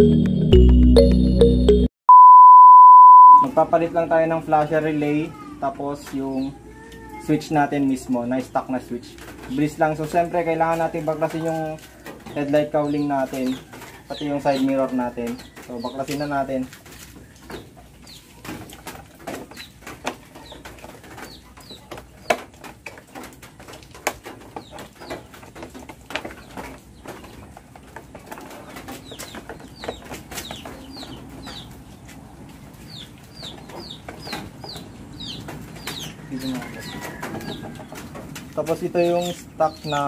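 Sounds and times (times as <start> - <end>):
birds chirping: 24.2 - 40.0.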